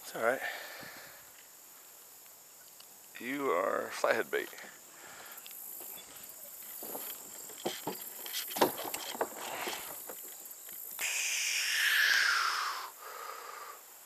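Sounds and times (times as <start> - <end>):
footsteps on wooden dock: 5.7 - 10.5.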